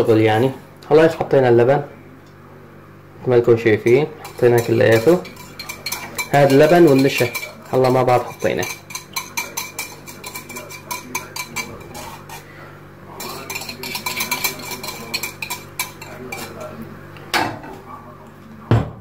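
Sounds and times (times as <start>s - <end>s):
whisk clicking against metal pot: 3.9s - 12.4s, 13.2s - 16.7s
whisk knocking against pot: 3.9s - 12.4s, 13.2s - 16.8s.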